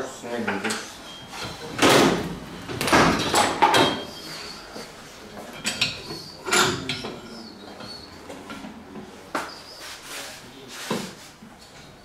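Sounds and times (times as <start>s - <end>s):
tools and metal parts clattering: 0.6s - 4.2s, 5.5s - 8.0s.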